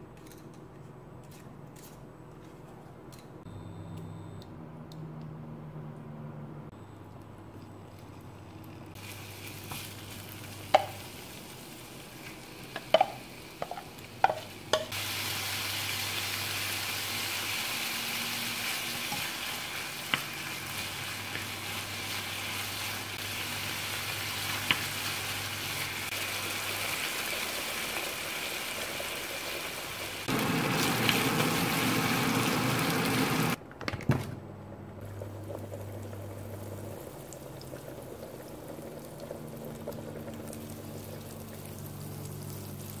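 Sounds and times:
meat sizzling in a pan: 9.0s - 33.6s.

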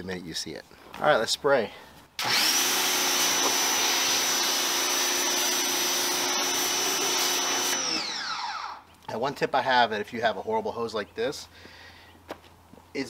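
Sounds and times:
pressure washer motor whine: 2.2s - 8.8s.

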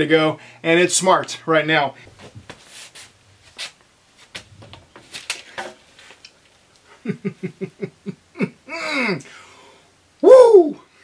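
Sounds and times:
short pained vocal yelps: 10.2s - 10.8s.

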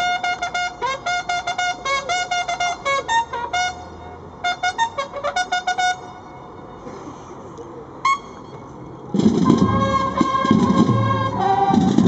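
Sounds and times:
bugle call: 9.2s - 12.0s.

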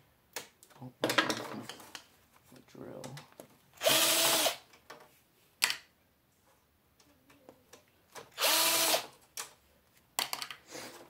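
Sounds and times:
cordless drill motor whine: 3.8s - 4.6s, 8.4s - 9.0s.

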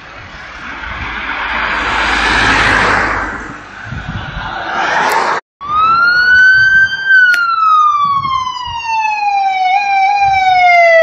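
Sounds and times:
ambulance siren wailing: 5.6s - 11.0s.

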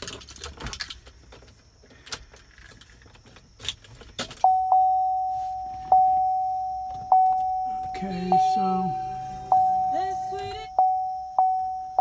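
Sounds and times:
keys jangling: 0.0s - 1.0s
dashboard warning chime dinging: 4.4s - 12.0s.

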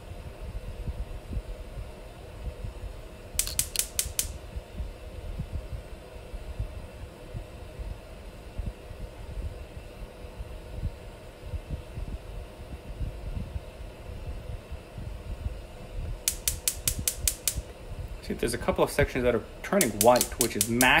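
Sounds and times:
faint steady hum: 0.0s - 21.0s
gas burner rumbling: 0.0s - 21.0s
sharp igniter clicks: 3.3s - 4.4s, 16.2s - 21.0s.

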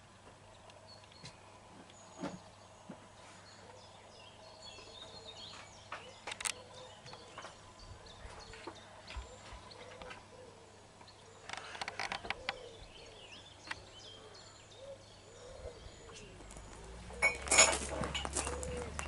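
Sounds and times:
small birds chirping: 0.0s - 19.0s
low bird call: 3.4s - 19.0s.

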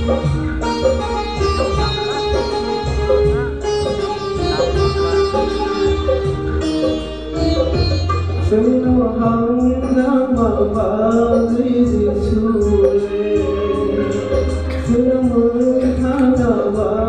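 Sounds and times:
backing track with bass beat: 0.0s - 17.0s
man singing into microphone: 8.4s - 17.0s.

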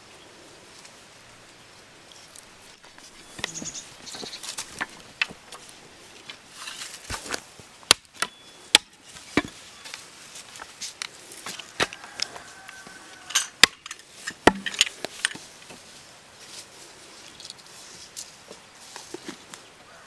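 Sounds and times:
hatchet chopping wooden sticks: 7.1s - 9.6s, 13.4s - 15.4s.

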